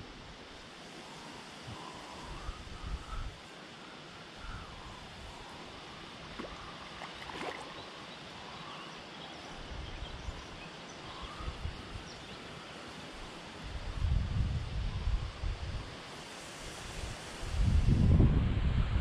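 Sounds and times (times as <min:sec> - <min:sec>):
outdoor hiss: 0:00.0 - 0:19.0
wind gusting on microphone: 0:01.1 - 0:03.4, 0:13.2 - 0:19.0.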